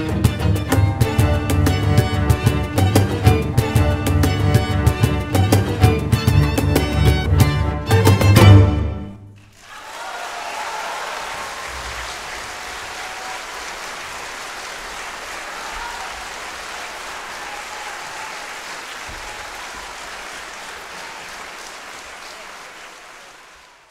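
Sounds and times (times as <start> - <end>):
audience applauding: 9.3 - 23.9.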